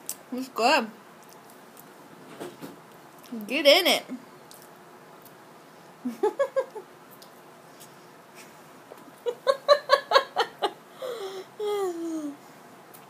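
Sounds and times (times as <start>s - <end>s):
person laughing: 6.0s - 6.8s, 9.2s - 12.4s.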